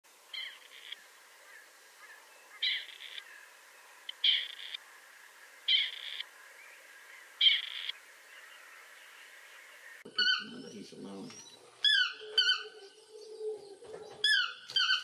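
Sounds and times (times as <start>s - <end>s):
quail calling: 0.3s - 3.5s, 4.1s - 4.8s, 5.6s - 6.3s, 7.4s - 9.0s, 9.6s - 10.8s, 11.7s - 15.0s.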